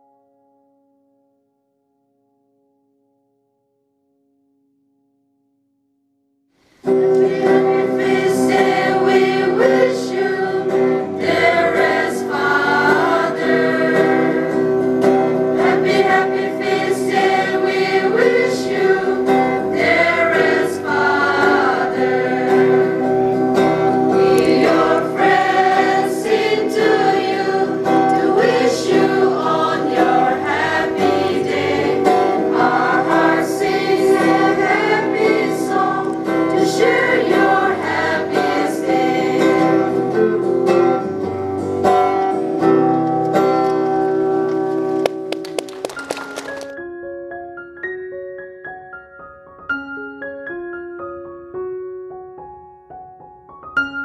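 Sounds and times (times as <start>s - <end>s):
strummed acoustic guitar: 6.8s - 45.3s
choir singing in unison: 7.1s - 14.8s, 15.5s - 23.2s, 24.0s - 41.0s.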